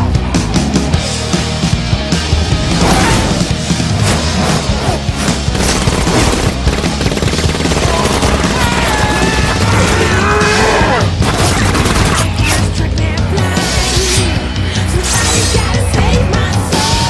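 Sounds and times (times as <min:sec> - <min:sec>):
film score music: 0:00.0 - 0:17.0
rapid automatic gunfire: 0:05.5 - 0:10.2, 0:11.2 - 0:12.4.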